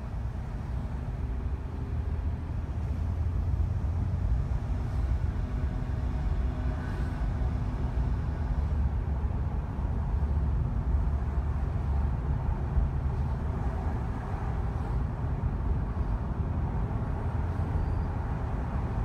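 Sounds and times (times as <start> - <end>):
car engine and tyre rumble: 0.0 - 19.0.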